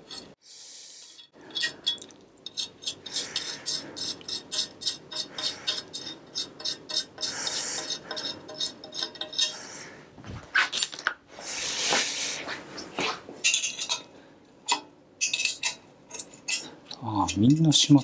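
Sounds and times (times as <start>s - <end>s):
metal scraping: 0.0s - 0.4s, 1.0s - 9.9s.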